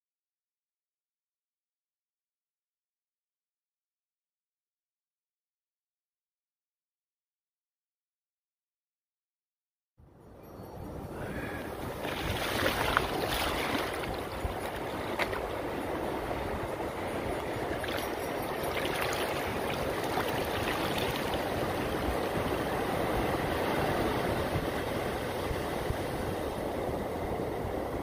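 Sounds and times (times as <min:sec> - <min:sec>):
ocean surf washing over sand: 0:11.2 - 0:28.0.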